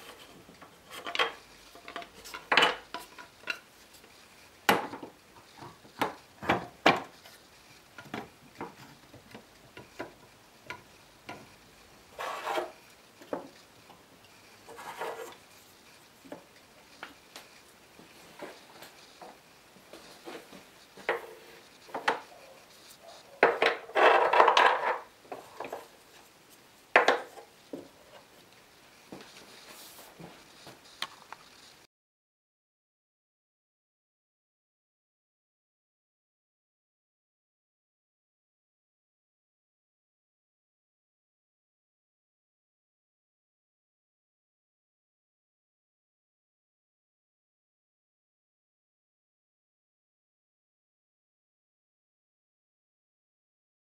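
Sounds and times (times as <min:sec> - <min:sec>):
wood scraping rub: 0:05.0 - 0:13.7, 0:14.4 - 0:26.4, 0:29.1 - 0:31.6.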